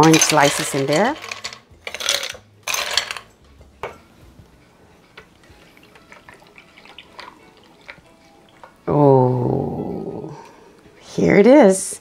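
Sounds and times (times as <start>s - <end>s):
ice cubes clattering: 0.0s - 3.3s, 5.8s - 8.8s.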